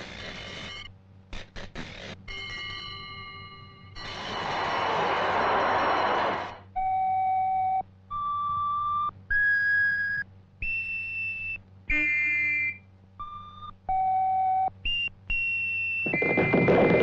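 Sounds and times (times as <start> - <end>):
whistle notes: 8.1 - 13.7.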